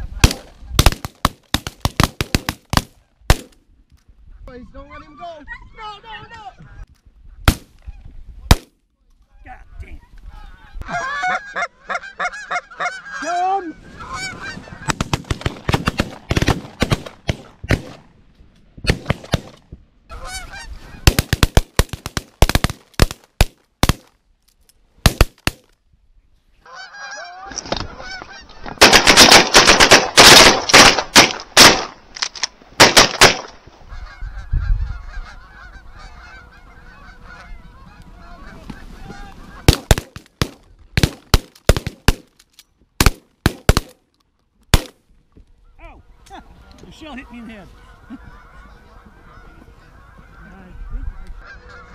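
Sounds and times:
geese honking: 4.8 - 6.9, 9.2 - 15.0, 20.1 - 21.2, 26.6 - 29.3, 33.7 - 39.9, 45.6 - 51.9.

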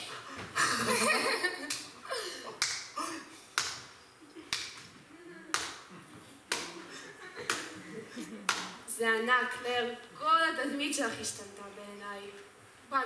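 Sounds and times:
sharp clap-like strokes: 1.6 - 2.0, 2.6 - 5.9, 6.5 - 6.9, 7.5 - 7.8, 8.5 - 8.8.

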